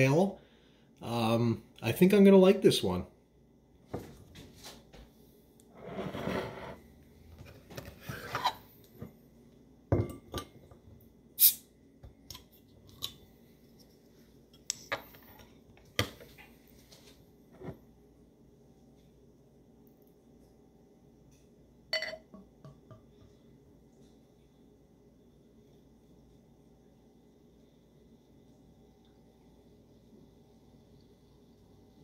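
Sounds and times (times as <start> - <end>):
glass clinks and knocks: 22.0 - 22.4.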